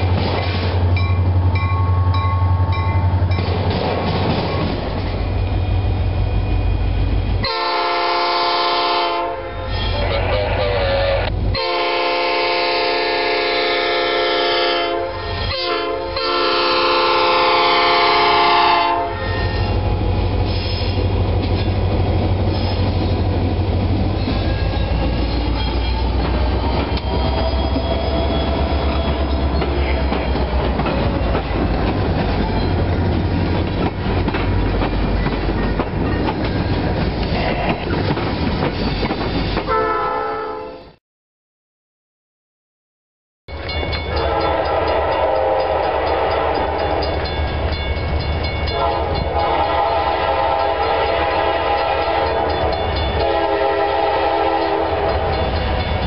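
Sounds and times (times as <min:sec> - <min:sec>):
train wheels clattering over rails: 0:00.0 - 0:01.8, 0:03.0 - 0:05.5, 0:20.4 - 0:39.7
locomotive air horn blasts: 0:07.4 - 0:19.8, 0:39.7 - 0:41.0, 0:44.1 - 0:47.2, 0:48.7 - 0:55.6.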